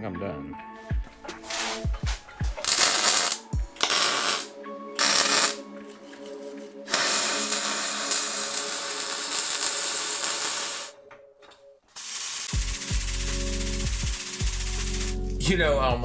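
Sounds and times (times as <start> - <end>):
background music: 0.0 - 16.0
welding arc crackling: 1.4 - 5.6, 6.9 - 11.0, 11.9 - 15.3.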